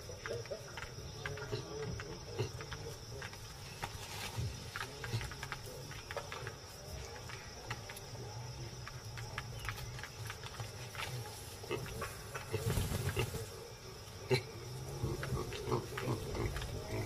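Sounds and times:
baboons grunting: 0.0s - 6.2s, 10.9s - 17.0s
insects chirring: 0.0s - 17.0s.

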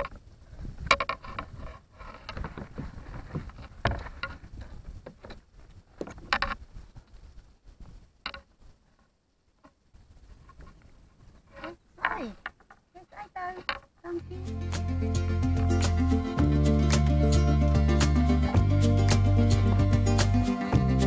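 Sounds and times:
clicks knocks and rustles of handling: 0.8s - 5.4s.

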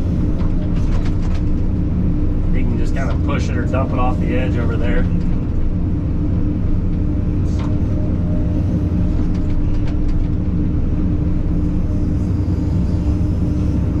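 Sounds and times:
excavator diesel engine running: 0.0s - 14.0s.

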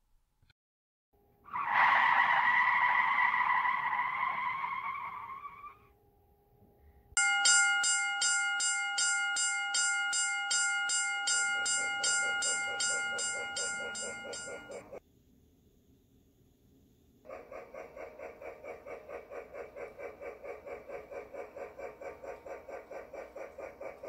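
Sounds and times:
railroad crossing bell ringing: 7.2s - 15.0s.

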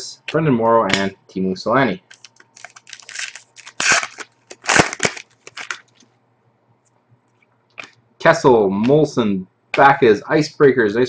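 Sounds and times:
cards rustling and snapping: 2.1s - 6.0s.

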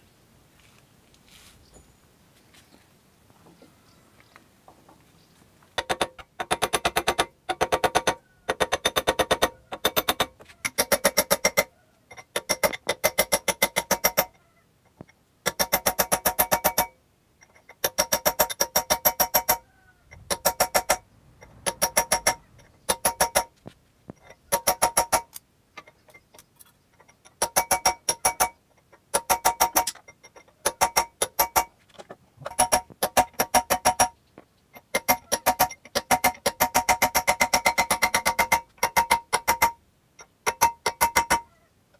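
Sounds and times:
hammer striking steel: 5.8s - 14.3s, 15.5s - 16.9s, 20.3s - 21.0s, 21.6s - 23.5s, 32.4s - 34.2s, 34.8s - 41.5s.

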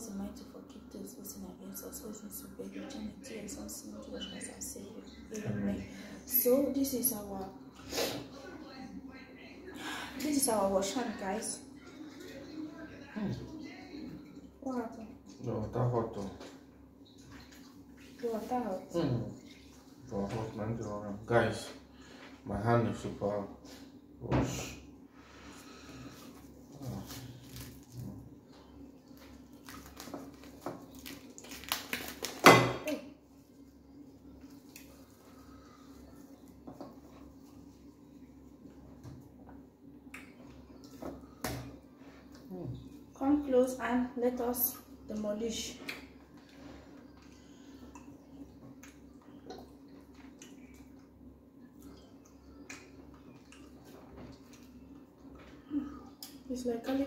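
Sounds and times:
steady low hum: 0.0s - 57.0s
wet squishes of eating by hand: 14.1s - 21.0s, 25.7s - 32.4s, 33.2s - 43.2s, 45.8s - 56.5s
plastic wrap crinkling: 26.8s - 28.2s, 29.1s - 32.6s.

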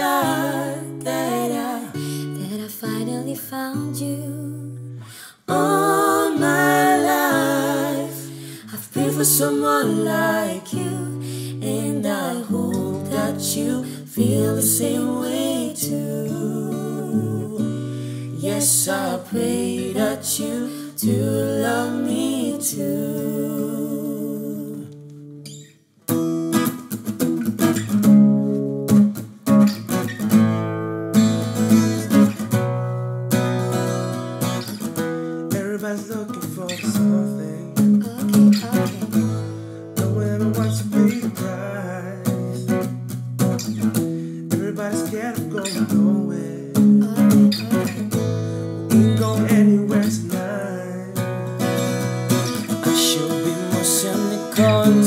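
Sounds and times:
person singing: 0.0s - 25.0s, 40.0s - 42.7s, 44.5s - 48.0s, 48.9s - 51.2s, 52.6s - 55.0s
acoustic guitar: 0.0s - 55.0s.

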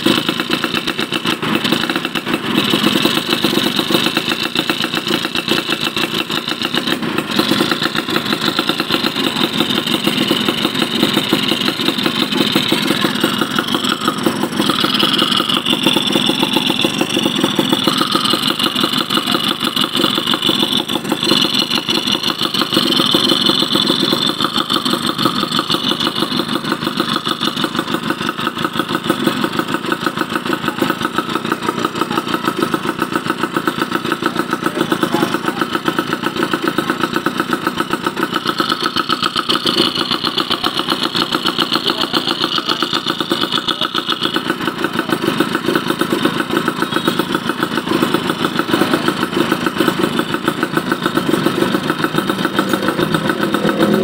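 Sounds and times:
two-stroke engine idling: 0.0s - 54.0s.

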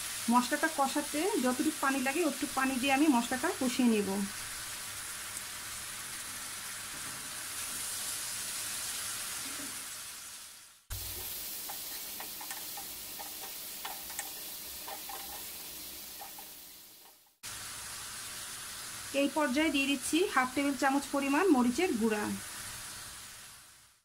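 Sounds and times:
onions sizzling in oil: 0.0s - 24.0s
wooden spoon clicking on pan: 11.6s - 15.4s.

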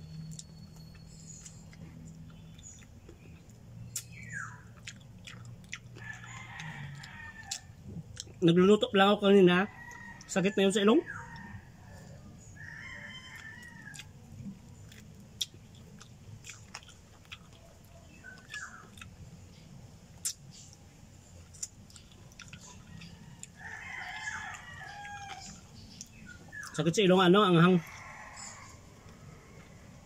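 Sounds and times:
chewing and crunching: 0.0s - 8.7s, 9.7s - 10.4s, 11.1s - 26.8s, 27.6s - 30.0s
rooster crowing: 5.9s - 7.8s, 9.5s - 14.1s, 22.7s - 25.7s, 27.6s - 30.0s.

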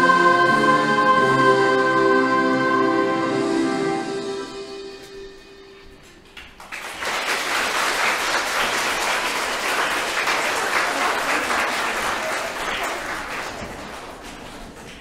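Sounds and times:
audience applause: 6.4s - 15.0s.

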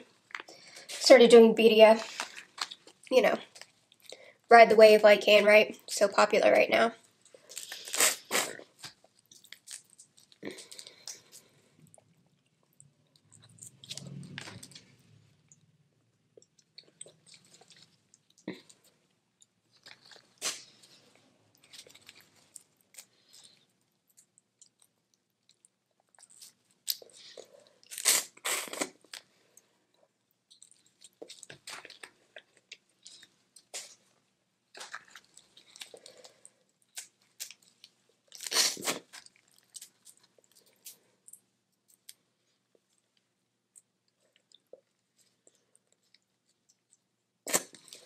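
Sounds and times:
chewing: 16.4s - 34.0s, 34.7s - 43.0s.

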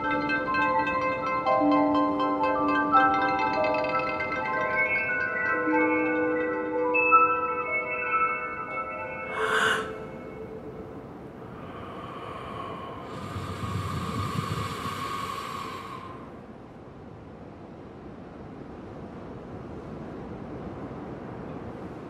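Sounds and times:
chime-like mallet notes: 0.0s - 11.0s
breathy rush of noise: 7.8s - 16.9s.

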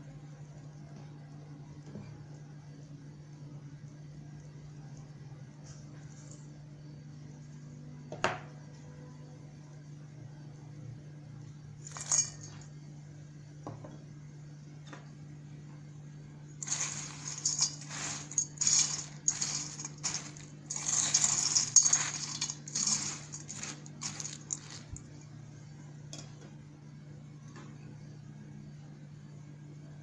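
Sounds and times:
nuts poured into steel bowl: 11.8s - 12.6s, 16.6s - 25.0s
metal spoon scraping steel bowl: 16.6s - 25.0s.

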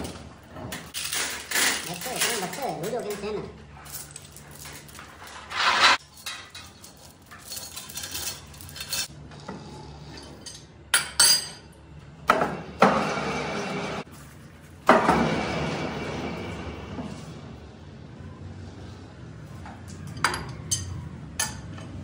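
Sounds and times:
metal chain and parts clanking: 0.0s - 9.1s.

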